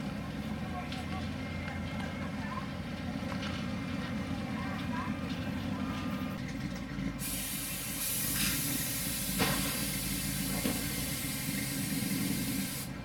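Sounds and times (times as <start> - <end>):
engine idling with uneven rumble: 0.0 - 13.0
loud steady hiss: 7.2 - 13.0.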